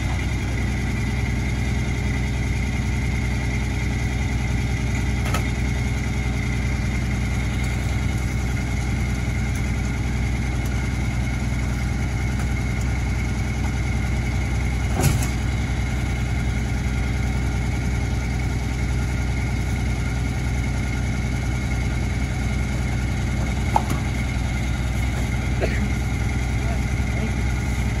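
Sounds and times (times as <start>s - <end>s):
garbage truck idling: 0.0s - 28.0s
junk clanking into hopper: 14.8s - 15.6s, 23.4s - 24.3s.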